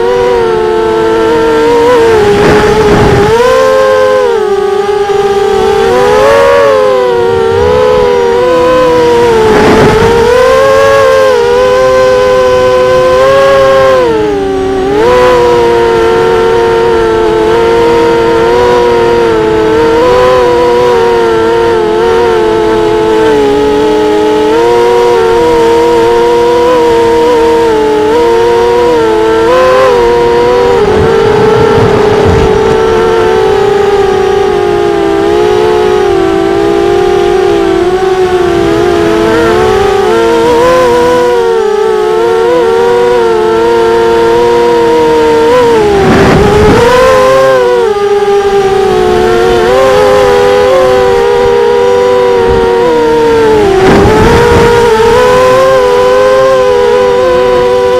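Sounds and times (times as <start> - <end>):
quadcopter motors whining: 0.0 - 57.9.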